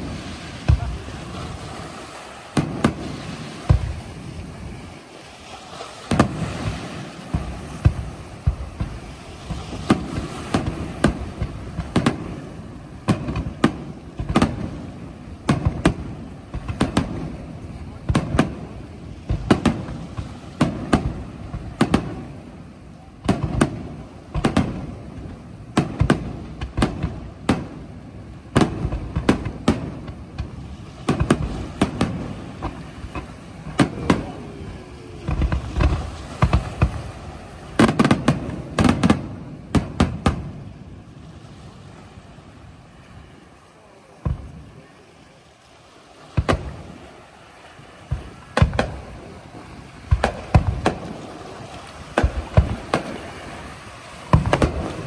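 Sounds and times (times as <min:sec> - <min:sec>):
firework shells bursting: 0:51.9 - 0:53.3, 0:54.3 - 0:55.0.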